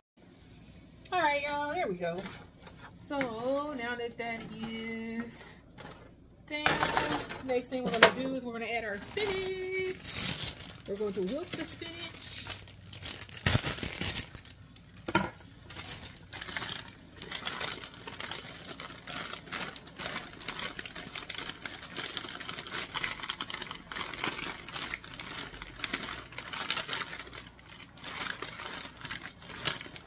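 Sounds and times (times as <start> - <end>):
plastic bag crinkling: 6.7 - 30.0.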